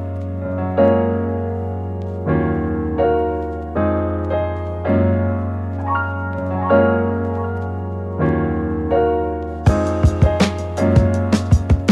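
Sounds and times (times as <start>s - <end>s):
held keyboard chords: 0.0s - 11.9s
percussive beat: 9.7s - 11.9s.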